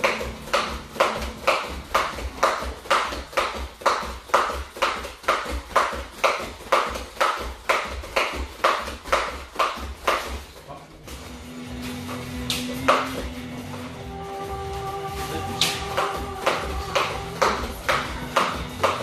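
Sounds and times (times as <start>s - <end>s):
bare feet landing: 0.0s - 10.7s
skipping rope slapping mat: 0.0s - 10.7s, 12.1s - 13.4s, 15.6s - 19.0s.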